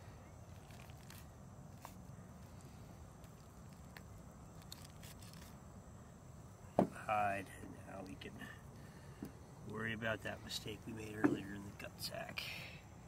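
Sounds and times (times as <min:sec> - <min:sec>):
outdoor background noise: 0:00.0 - 0:13.0
knife cutting and skin tearing: 0:00.5 - 0:02.0, 0:03.2 - 0:05.6.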